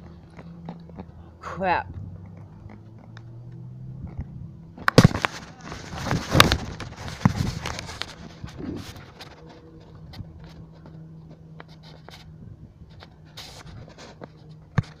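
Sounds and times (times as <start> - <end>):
phone microphone handling rubbing: 4.0 - 15.0.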